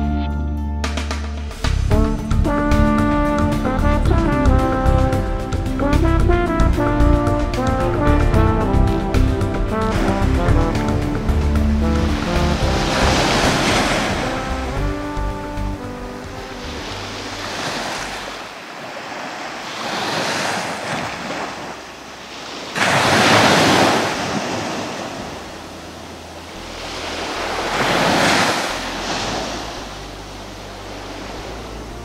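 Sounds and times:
waves breaking on a sandy beach: 9.8 - 32.0.

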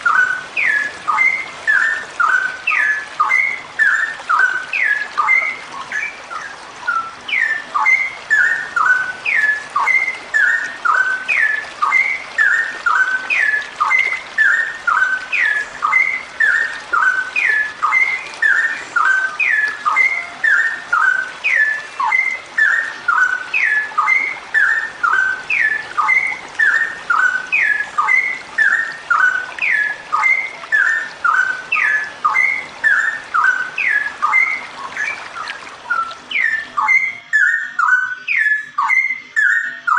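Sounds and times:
bird singing sliding notes: 0.0 - 39.9.

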